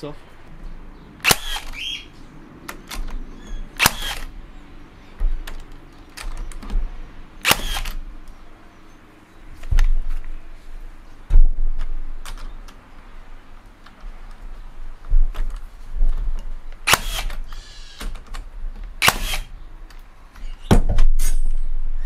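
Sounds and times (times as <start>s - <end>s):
nailer firing nails: 1.2s - 2.0s, 3.8s - 4.3s, 7.4s - 8.0s, 16.8s - 18.3s, 19.0s - 19.5s.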